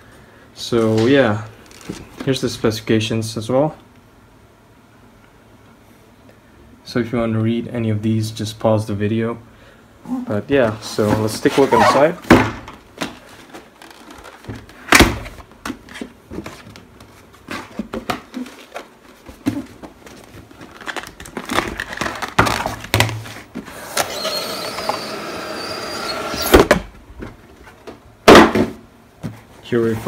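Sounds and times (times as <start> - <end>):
squealing cardboard rub: 11.4 - 12.2, 24.0 - 26.6.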